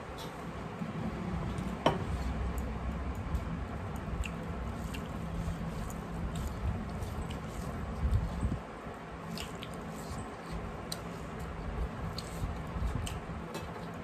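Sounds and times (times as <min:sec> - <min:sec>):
low steady hum: 0:00.0 - 0:14.0
wet squishing of food: 0:01.6 - 0:08.6, 0:09.2 - 0:14.0
chewing: 0:04.0 - 0:08.4, 0:09.2 - 0:13.9.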